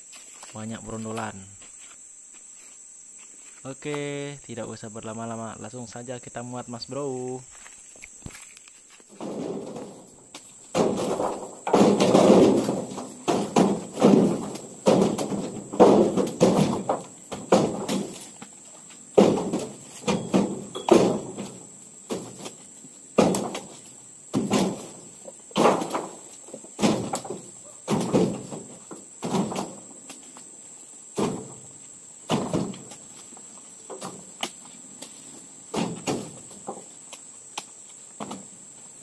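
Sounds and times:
heavy thuds into truck bed: 9.1 - 18.4, 19.1 - 22.5, 23.1 - 30.0, 31.1 - 33.0, 35.7 - 36.8.

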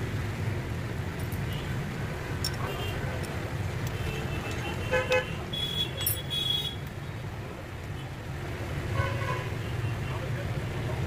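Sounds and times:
rumble of passing vehicles: 0.0 - 11.0.

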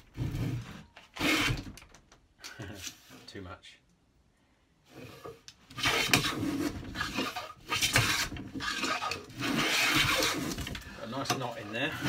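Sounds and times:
hand plane shaving wood: 5.1 - 12.0.

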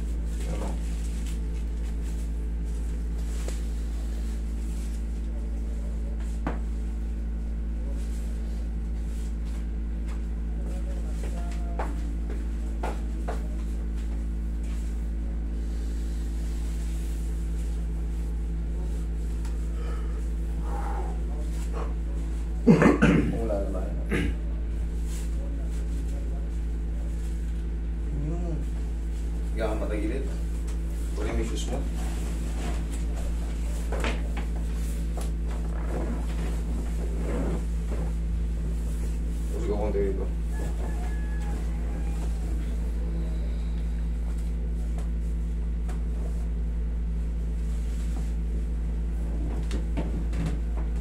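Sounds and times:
air conditioner drone: 0.0 - 51.0
steady low hum: 0.0 - 51.0.

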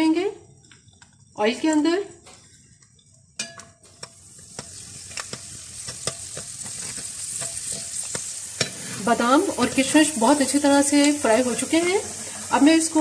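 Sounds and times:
spoon scraping a pot: 2.3 - 9.0
food frying in hot oil: 3.3 - 13.0.

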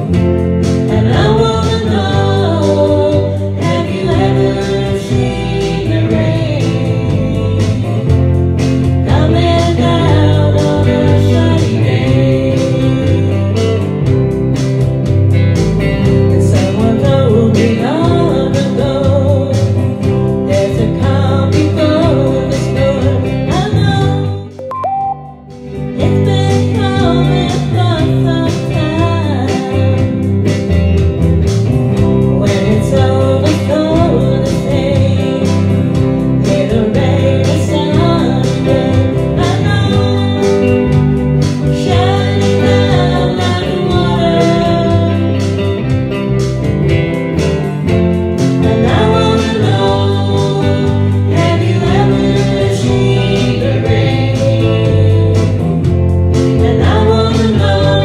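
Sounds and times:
guitar backing with steady beat: 0.0 - 58.0
person singing: 0.8 - 8.2, 9.1 - 13.8, 16.4 - 19.8, 20.5 - 30.0, 32.3 - 35.7, 36.4 - 41.0, 41.6 - 45.7, 56.5 - 58.0.

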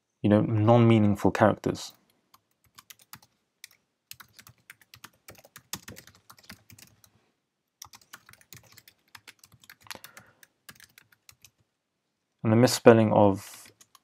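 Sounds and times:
faint keyboard typing: 1.9 - 7.2, 7.8 - 11.7, 13.5 - 14.0.

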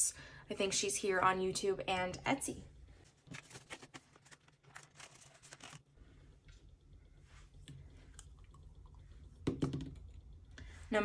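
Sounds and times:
rustling paper cash: 3.2 - 5.9.

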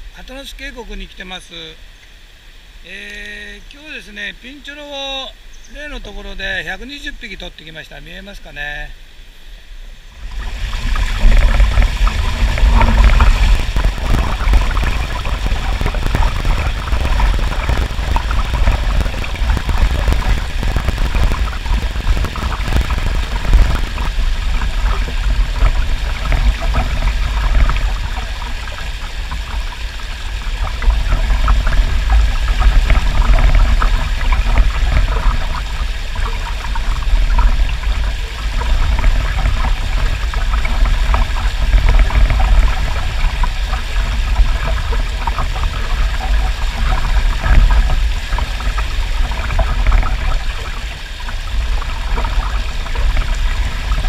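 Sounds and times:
stream water rushing over rocks: 0.0 - 54.0
deep rumble: 10.1 - 54.0.

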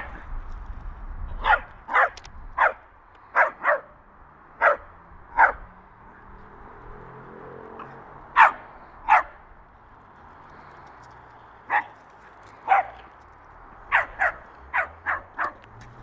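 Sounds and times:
dog barking: 1.4 - 4.0, 4.6 - 5.7, 7.8 - 9.4, 11.7 - 12.0, 12.6 - 13.0, 13.9 - 15.6.

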